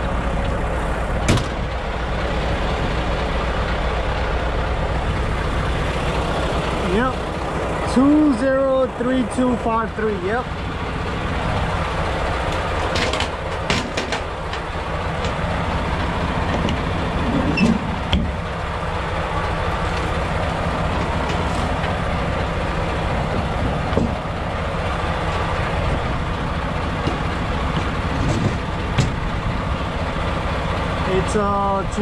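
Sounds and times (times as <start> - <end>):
diesel truck engine running: 0.0 - 32.0
sharp clicks and knocks: 12.5 - 15.4, 16.0 - 18.4, 26.8 - 29.4.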